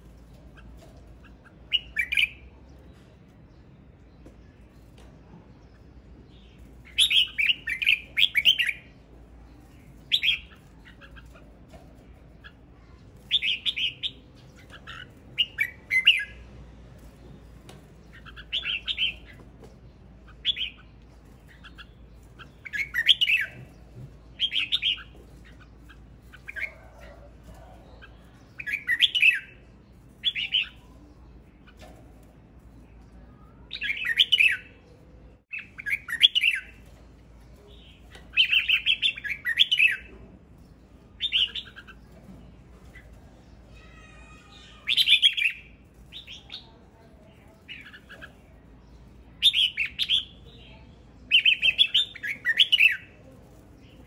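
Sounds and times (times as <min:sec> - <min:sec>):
bird singing: 0:20.3 - 0:32.2.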